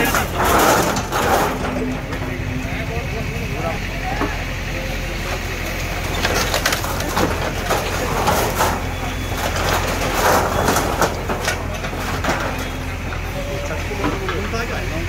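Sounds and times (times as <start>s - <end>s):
diesel engine hum: 0.0s - 15.0s
wood splintering and metal scraping: 0.0s - 15.0s.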